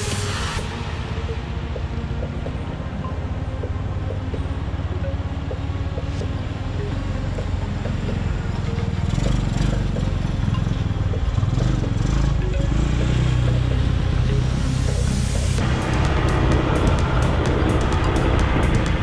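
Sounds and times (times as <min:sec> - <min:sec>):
small off-road engines passing: 0:00.0 - 0:19.0.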